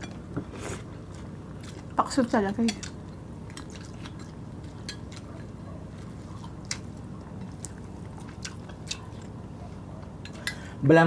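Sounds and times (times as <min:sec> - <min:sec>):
low steady hum: 0:00.0 - 0:11.0
wet chewing mouth clicks: 0:02.8 - 0:09.4.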